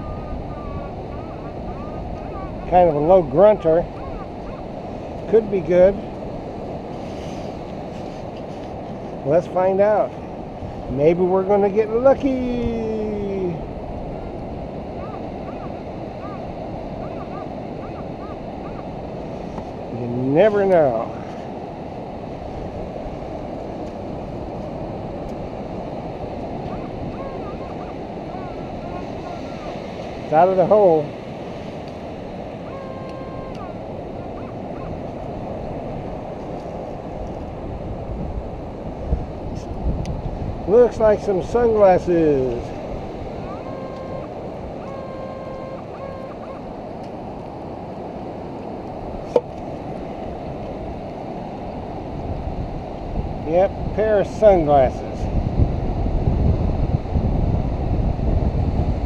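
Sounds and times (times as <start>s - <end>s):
surf on beach: 0.0s - 59.0s
wind: 0.0s - 59.0s
wind buffeting microphone: 0.0s - 59.0s
faint steady tone: 11.8s - 37.6s, 42.5s - 47.1s
short wavering tones: 43.4s - 46.7s.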